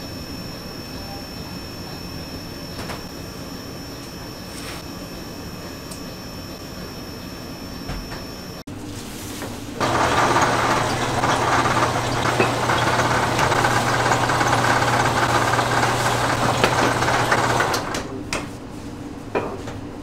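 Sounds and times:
motor-driven machine humming: 9.8s - 18.2s.

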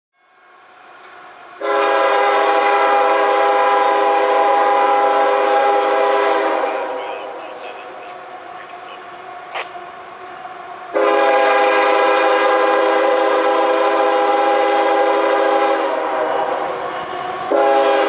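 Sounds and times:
locomotive air horn blast: 1.6s - 8.0s, 10.9s - 18.0s.

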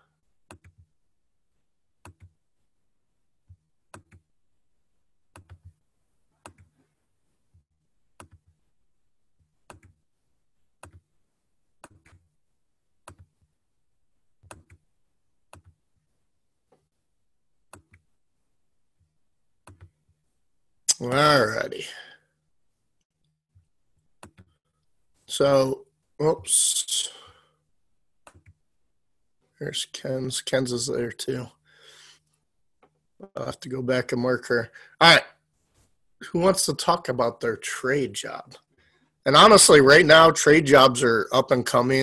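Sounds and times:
computer mouse clicking: 0.5s - 0.9s, 2.0s - 2.4s, 3.5s - 4.3s, 5.3s - 5.8s, 6.4s - 6.8s, 8.2s - 8.6s, 9.6s - 10.0s, 10.8s - 11.1s, 11.8s - 12.3s, 13.0s - 13.4s, 14.4s - 14.8s, 15.5s - 15.8s, 17.7s - 18.1s, 19.6s - 20.0s, 24.1s - 24.6s, 28.2s - 28.6s.

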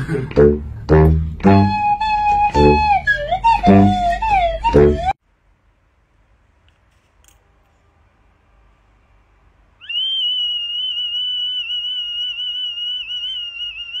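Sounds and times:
high-pitched whistle tone: 1.4s - 5.2s, 9.8s - 14.0s.

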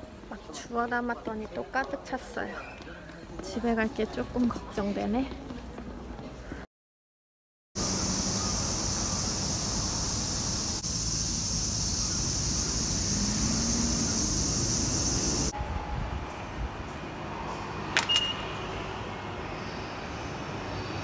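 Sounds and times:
cicada chorus: 7.8s - 15.5s
road traffic rumble: 7.8s - 21.0s.

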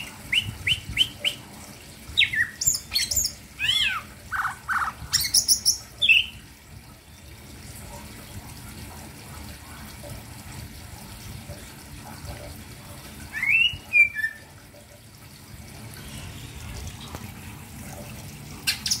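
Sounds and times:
bird whistling call: 13.4s - 14.4s.

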